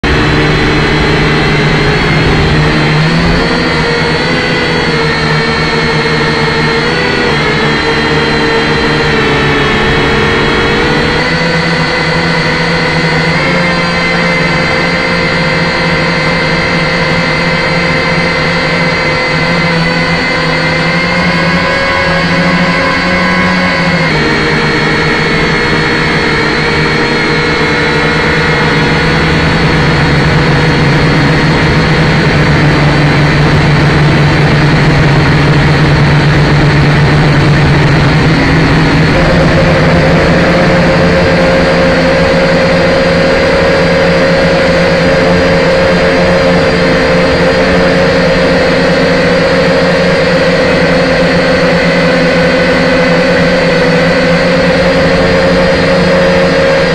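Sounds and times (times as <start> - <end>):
toy drone motors whining: 0.2 - 36.8.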